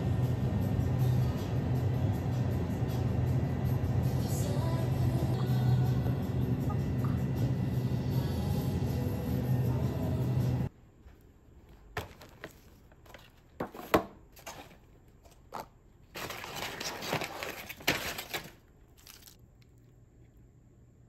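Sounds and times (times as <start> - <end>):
plastic bag crinkling: 16.0 - 19.9.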